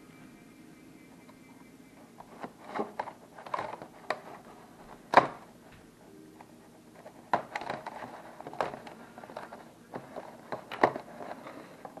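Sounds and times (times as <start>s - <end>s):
plastic crackles and taps: 2.2s - 5.4s, 6.4s - 12.0s.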